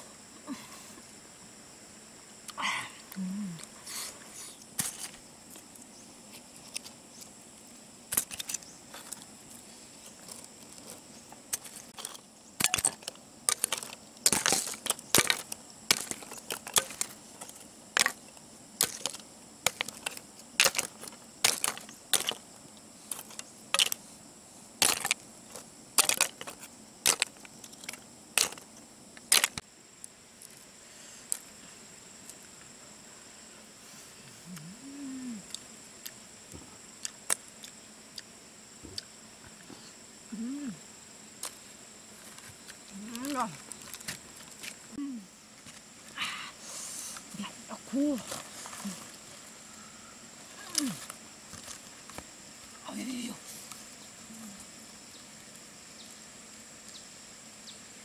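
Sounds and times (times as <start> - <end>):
mussel shells clicking and cracking: 10.2 - 18.2, 18.8 - 22.4, 23.1 - 24.0, 24.8 - 29.6.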